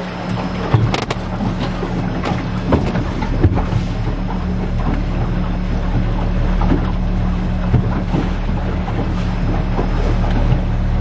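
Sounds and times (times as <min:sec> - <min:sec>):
outboard motor running: 0:00.0 - 0:11.0
water splashing against hull: 0:00.0 - 0:11.0.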